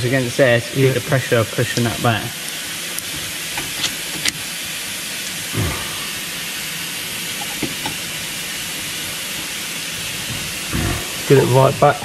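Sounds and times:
steady hiss: 0.0 - 12.0
short low sound: 5.6 - 6.7.

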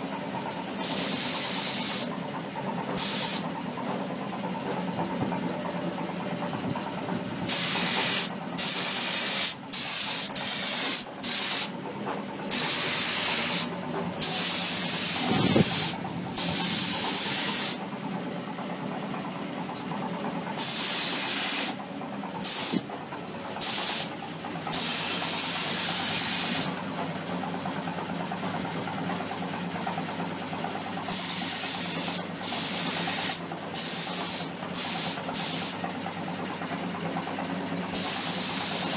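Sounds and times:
low machine hum: 0.0 - 9.0, 11.0 - 38.9
paint spray gun hissing: 0.2 - 2.1, 2.9 - 3.5, 7.4 - 11.7, 12.5 - 17.8, 20.3 - 21.8, 22.4 - 22.8, 23.6 - 24.1, 24.7 - 26.8, 31.1 - 35.8, 37.8 - 38.9.

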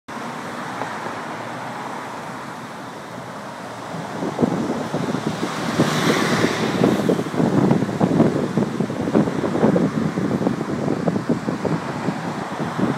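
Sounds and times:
car going by: 0.1 - 12.9
street traffic passing: 0.1 - 12.9
wind buffeting microphone: 3.2 - 12.9.

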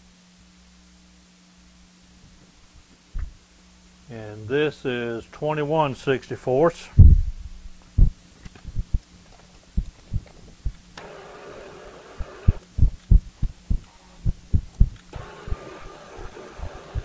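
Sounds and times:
faint low hum: 0.0 - 17.0
brief rushing hiss: 11.0 - 12.6, 15.1 - 17.0.

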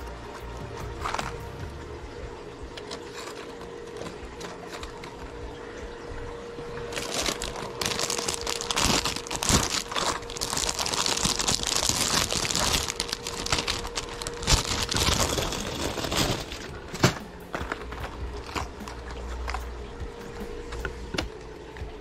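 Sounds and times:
faint steady hum: 0.0 - 22.0
plastic packaging crinkling: 0.4 - 1.6, 2.8 - 5.4, 6.8 - 19.7.

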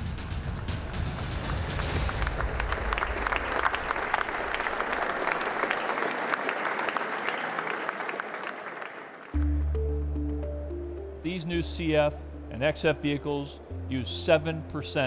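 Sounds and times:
drum-led music: 0.0 - 2.9
audience applauding: 1.4 - 10.0
music with low sustained notes: 9.4 - 15.0.

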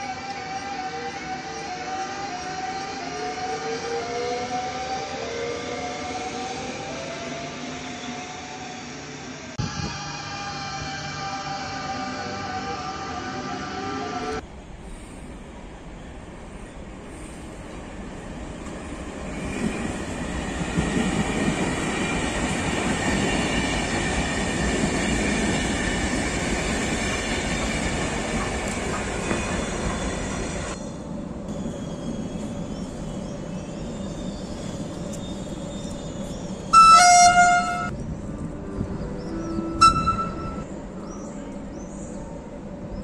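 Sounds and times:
high whine of train: 0.0 - 43.0
train horn: 9.6 - 14.4, 36.7 - 37.9, 38.8 - 40.8
train wheels rumbling on rails: 13.7 - 43.0.

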